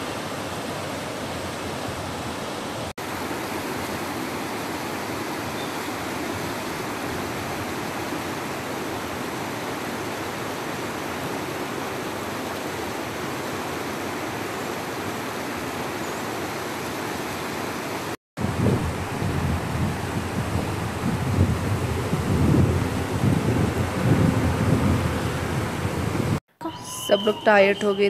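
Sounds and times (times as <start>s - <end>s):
river rushing over stones: 0.0s - 26.4s.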